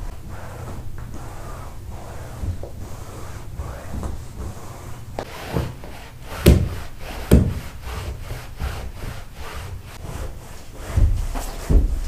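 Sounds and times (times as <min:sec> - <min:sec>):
cloth rubbing on upholstery: 0:00.0 - 0:12.0
heavy thumps: 0:10.8 - 0:12.0.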